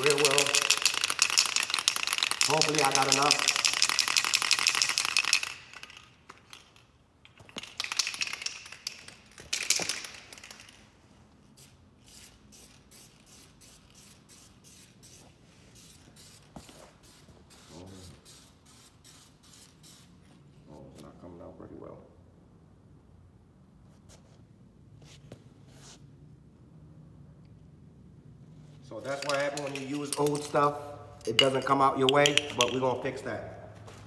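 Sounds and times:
spray can ball rattling: 0.0 - 15.2, 15.8 - 20.1, 29.0 - 33.2
aerosol spray can hissing: 11.6 - 20.1.

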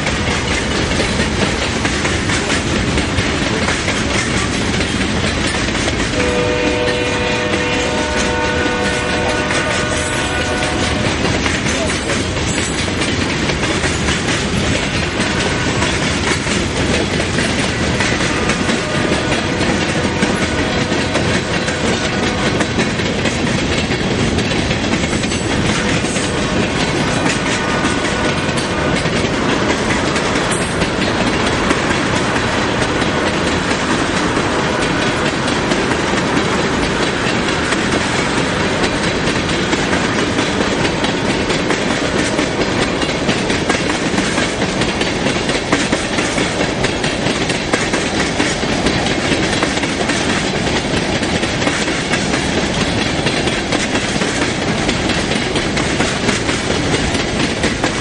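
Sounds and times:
steel wheels on rail: 0.0 - 58.0.

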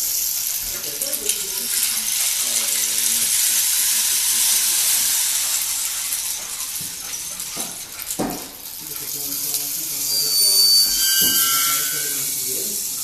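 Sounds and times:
rain sticks rushing hiss: 0.0 - 13.0
sharp knocks: 7.6 - 8.6.

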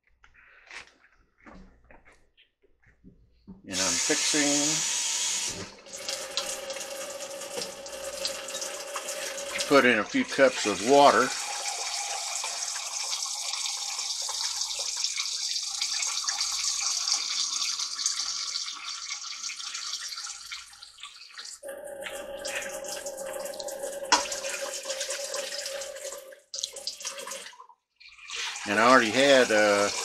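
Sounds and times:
kitchen tap running: 3.7 - 30.0
water splashing into metal pot: 7.5 - 30.0.

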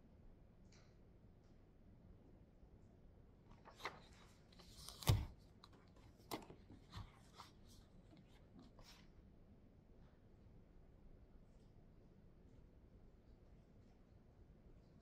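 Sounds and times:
paper rustling: 3.5 - 9.1.

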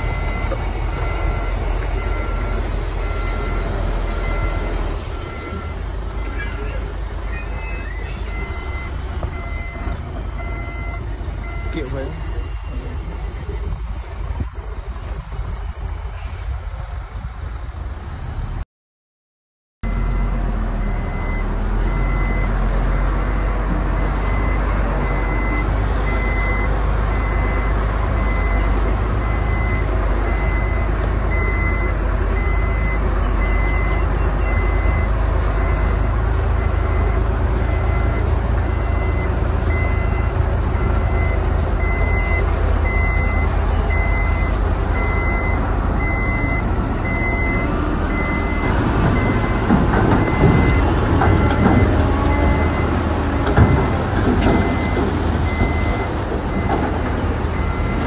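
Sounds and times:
diesel engine rumble: 0.0 - 18.6, 19.8 - 58.0
backup alarm beeping: 8.0 - 13.8, 23.2 - 56.8
rattling and clanking: 48.2 - 58.0.

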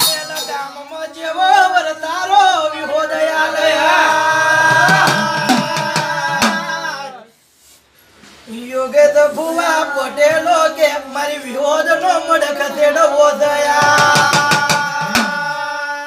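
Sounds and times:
men singing a devotional chant: 0.0 - 7.4, 8.5 - 16.0
hand drum strokes: 4.7 - 6.8.

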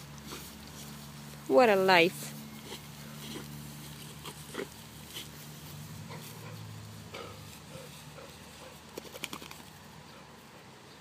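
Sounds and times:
dog rolling in grass: 0.0 - 11.0
sharp clicks of dog shaking head: 8.9 - 9.8.

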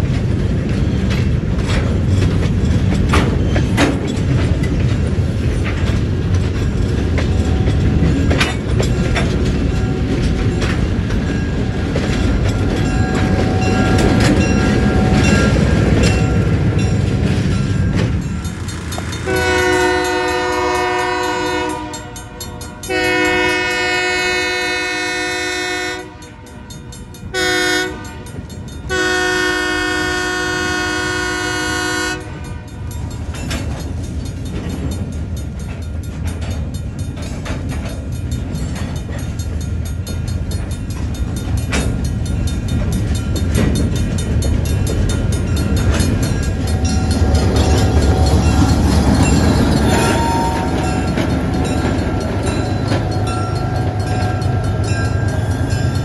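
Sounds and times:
clanks from rail cars: 0.0 - 56.0
locomotive engine rumbling: 0.0 - 56.0
locomotive horn blast: 18.7 - 32.9, 46.6 - 56.0.

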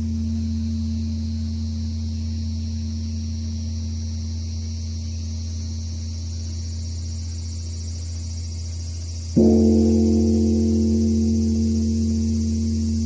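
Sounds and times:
large temple bell humming: 0.0 - 5.9, 9.4 - 13.0.

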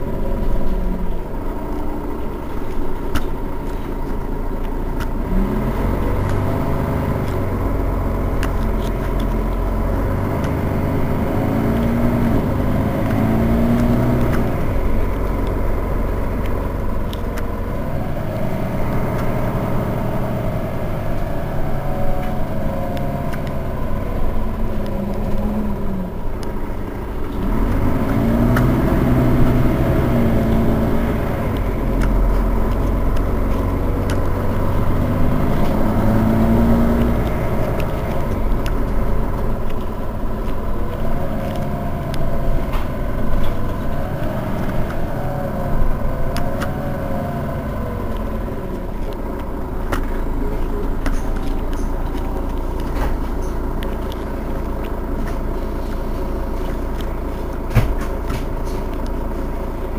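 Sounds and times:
bus engine idling: 0.0 - 59.9.

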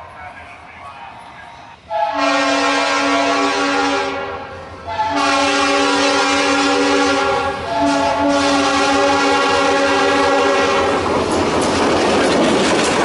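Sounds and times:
locomotive air horn blasts: 1.9 - 11.0.

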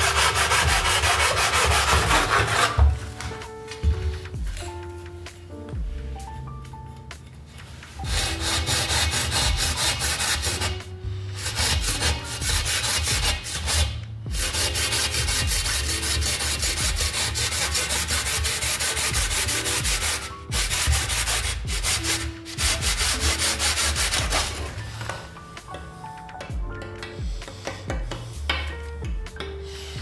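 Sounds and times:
hand saw cutting: 0.0 - 3.0, 8.1 - 10.8, 11.4 - 24.8.

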